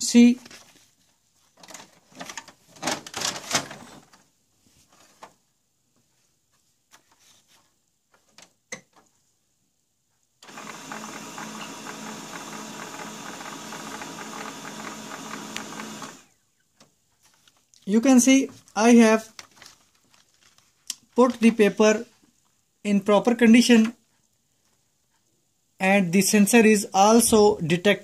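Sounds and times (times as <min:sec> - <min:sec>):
paper rustling: 0:00.4 - 0:08.5, 0:17.1 - 0:22.4
printer motor hum and rattle: 0:10.4 - 0:16.3.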